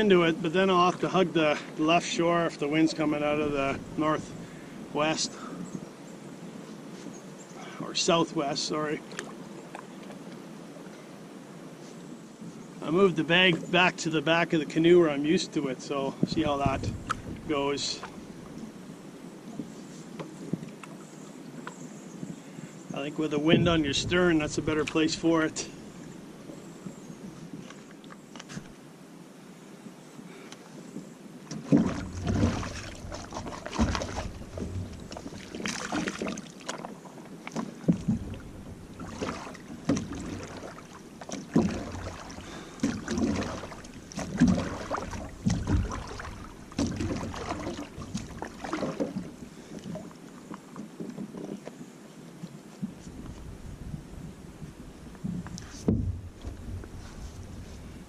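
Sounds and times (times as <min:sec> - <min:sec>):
water splashing and sloshing: 0:00.0 - 0:28.8, 0:30.6 - 0:58.0
knocks against canoe hull: 0:31.5 - 0:36.9, 0:37.5 - 0:49.3, 0:55.2 - 0:57.0.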